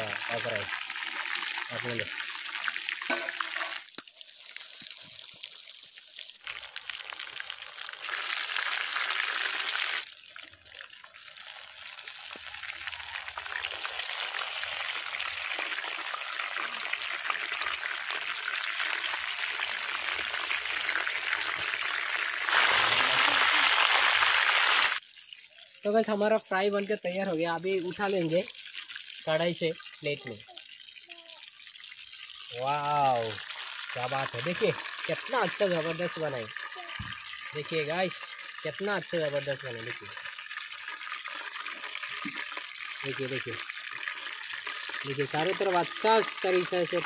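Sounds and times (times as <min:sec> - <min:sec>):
chicken deep-frying in oil: 0:00.0 - 0:47.0.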